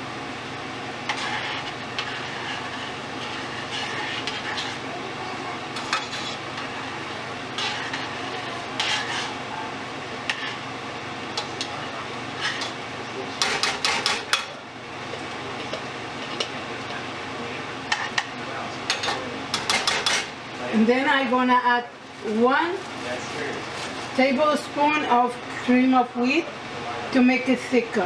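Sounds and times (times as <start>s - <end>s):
soup boiling: 0.3s - 4.9s, 5.5s - 12.8s.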